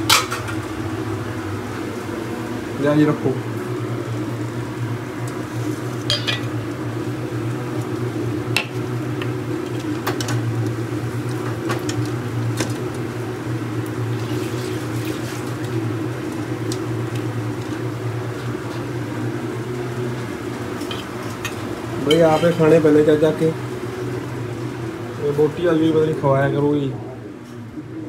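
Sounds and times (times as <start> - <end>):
steel dishes clinking: 6.1 - 6.5.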